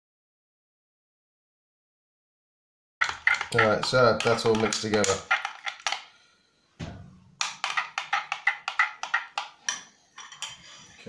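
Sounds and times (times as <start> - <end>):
wood-block clicks: 7.4 - 9.8.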